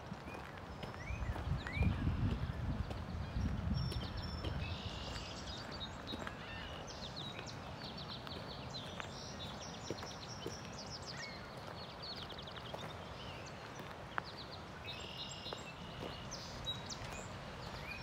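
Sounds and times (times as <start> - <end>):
footsteps crunching on gravel: 0.0 - 18.0
small birds chirping and trilling: 0.2 - 18.0.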